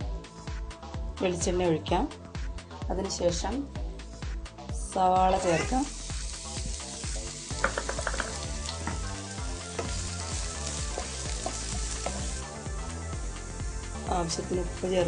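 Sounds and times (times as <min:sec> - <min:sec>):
onions sizzling in oil: 0:04.9 - 0:15.0
stirring in pan: 0:05.3 - 0:12.6.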